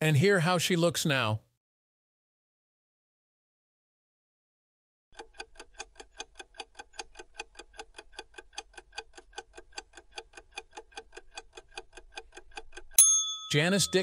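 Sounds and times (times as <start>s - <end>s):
clock ticking quickly: 5.1s - 14.0s.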